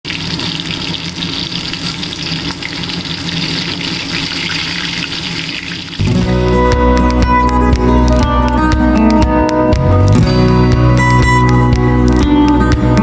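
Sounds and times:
food sizzling in hot oil: 0.0 - 6.1
strummed guitar music: 6.0 - 13.0.

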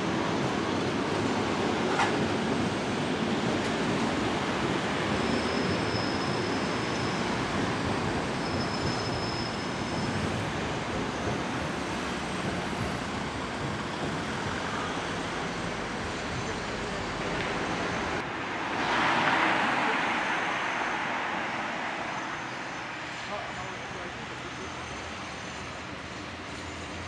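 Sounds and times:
road traffic: 0.0 - 27.0
trams rumbling on tracks: 0.0 - 27.0
faint high squeal: 4.8 - 11.4, 20.3 - 27.0.

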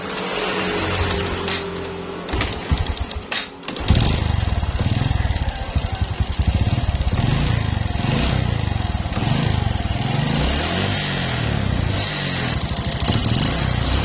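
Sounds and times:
motorcycle engine revving: 0.0 - 14.0
rapid engine ticking: 2.7 - 10.2, 12.5 - 14.0.

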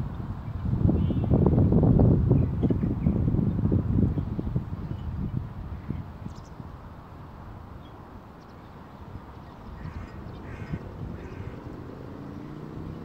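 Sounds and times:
wind on microphone: 0.0 - 13.0
waterbird quacking calls: 9.7 - 11.7.

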